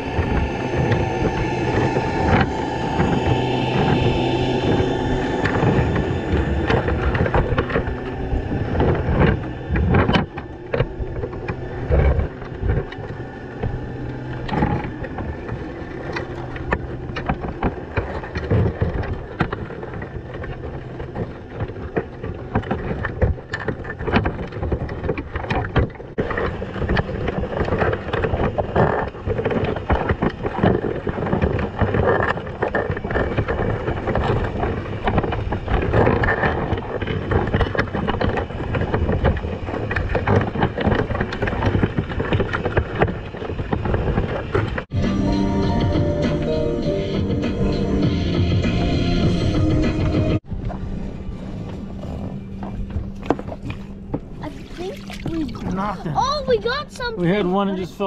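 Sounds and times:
crabs clicking and knocking: 0:00.0 - 0:44.9
underwater rushing noise: 0:00.0 - 0:45.4
steady low hum: 0:00.0 - 0:58.0.

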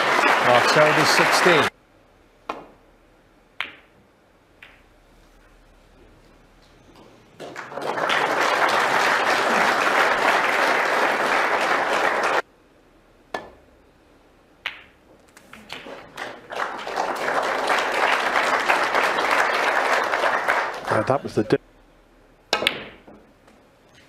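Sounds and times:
crowd applauding: 0:00.0 - 0:01.7, 0:07.4 - 0:12.4, 0:15.4 - 0:21.6
snooker balls clicking: 0:03.6 - 0:04.0, 0:04.6 - 0:04.9, 0:14.6 - 0:16.5.

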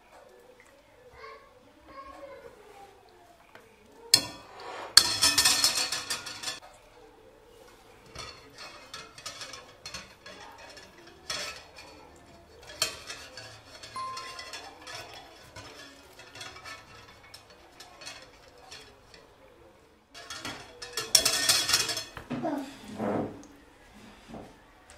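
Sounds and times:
wire rack clinking against bowl: 0:04.1 - 0:06.7, 0:07.9 - 0:22.3.

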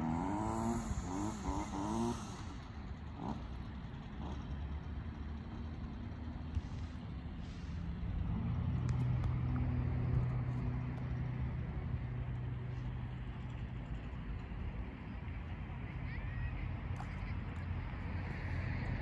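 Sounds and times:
low outdoor rumble: 0:00.0 - 0:19.0
vehicle engine hum: 0:00.0 - 0:19.0.

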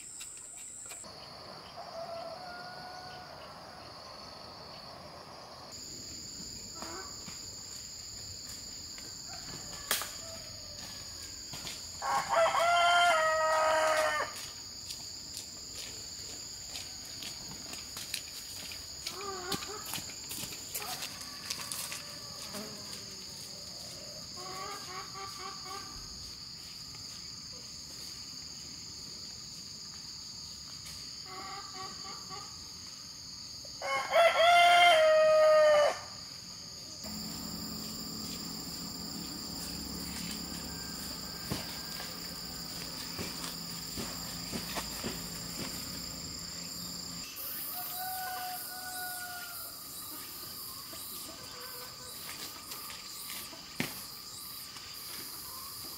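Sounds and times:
insect drone: 0:00.0 - 0:55.9
rooster crowing: 0:01.7 - 0:04.2, 0:09.2 - 0:11.4, 0:12.0 - 0:14.4, 0:20.8 - 0:22.7, 0:33.8 - 0:36.2, 0:37.1 - 0:44.2, 0:47.4 - 0:49.8.

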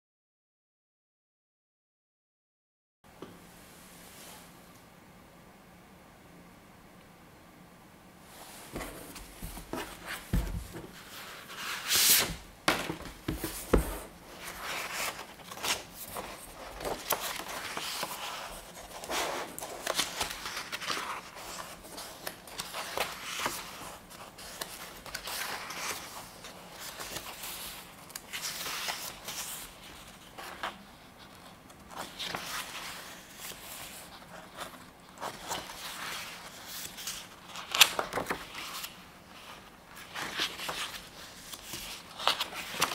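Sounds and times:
paper pages turning: 0:08.7 - 0:42.9.

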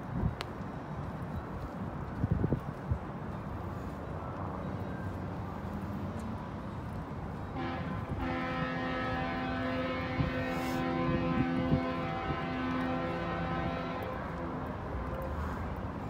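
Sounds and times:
city background noise: 0:00.0 - 0:16.0
rain: 0:07.5 - 0:16.0.

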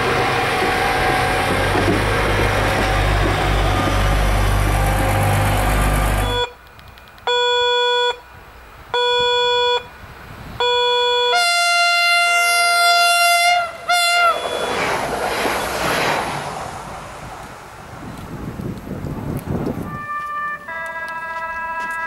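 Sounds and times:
diesel engine idling: 0:00.0 - 0:06.5
railcar horn blasts: 0:04.8 - 0:06.6, 0:10.6 - 0:14.8, 0:19.8 - 0:22.0.

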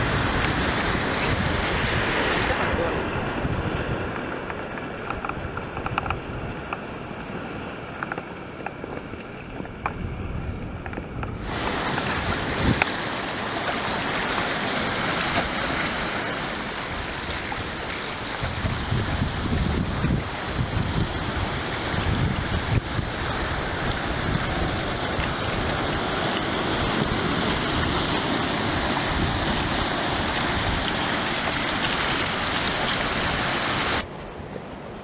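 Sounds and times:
surf splashing among rocks: 0:00.0 - 0:10.2, 0:11.3 - 0:35.0
wind on microphone: 0:00.0 - 0:35.0.

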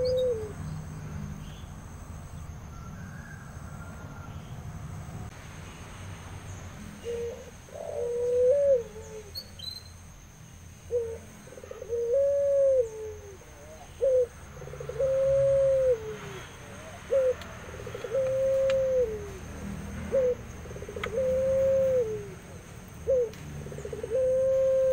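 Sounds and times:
dove cooing: 0:00.0 - 0:00.6, 0:07.0 - 0:09.4, 0:10.9 - 0:24.9.

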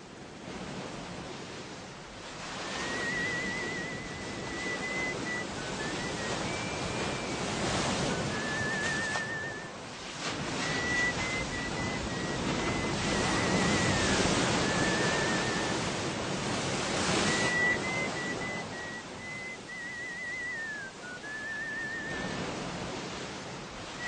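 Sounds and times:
sea surf washing in: 0:00.0 - 0:24.0
thin high wavering tone: 0:02.8 - 0:09.8, 0:10.6 - 0:15.8, 0:17.3 - 0:22.2.

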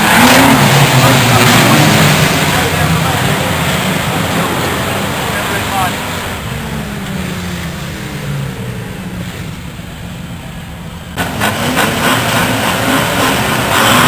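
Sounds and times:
race car engines revving: 0:00.0 - 0:14.0.

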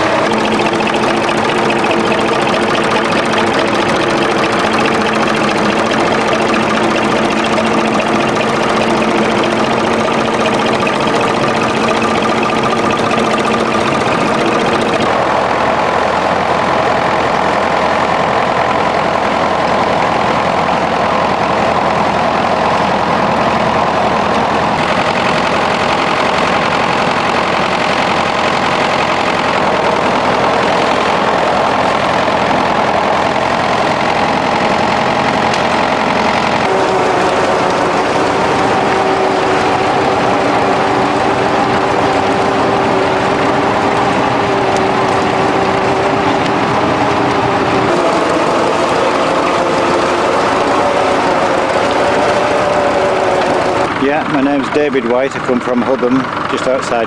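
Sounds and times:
tractor engines under load: 0:00.0 - 0:57.0.

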